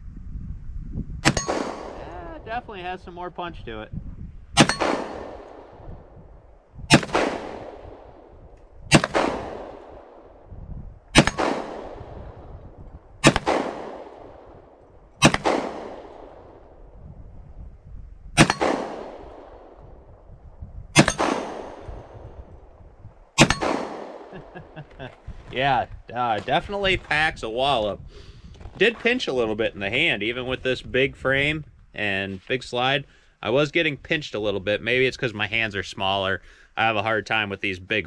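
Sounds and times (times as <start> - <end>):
pistol shots: 1.2 - 2.1, 4.6 - 5.9, 6.9 - 8.3, 8.9 - 10.4, 11.2 - 12.5, 13.2 - 16.8, 18.4 - 19.9, 21.0 - 22.5, 23.4 - 24.8.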